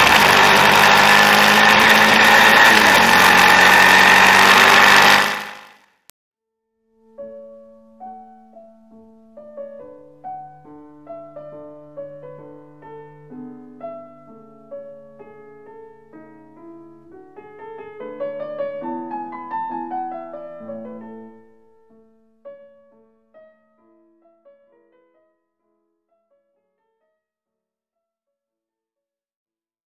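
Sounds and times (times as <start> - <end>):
slow piano music: 7.0 - 25.5.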